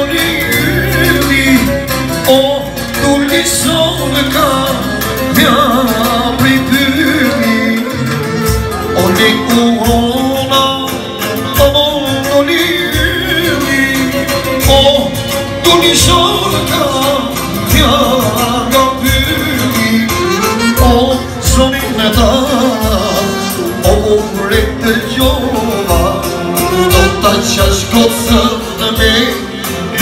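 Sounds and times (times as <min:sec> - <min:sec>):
man singing into a microphone: 0:00.0 - 0:30.0
electronic keyboard with beat: 0:06.4 - 0:29.4
clarinet playing: 0:07.2 - 0:09.6, 0:20.1 - 0:21.4, 0:22.4 - 0:23.9.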